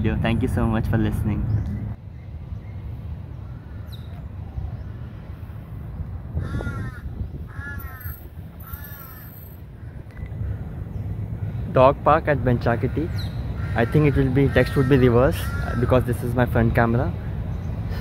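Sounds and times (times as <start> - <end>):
low steady rumble: 0.0 - 18.0
crow cawing: 6.4 - 10.6, 12.8 - 16.1.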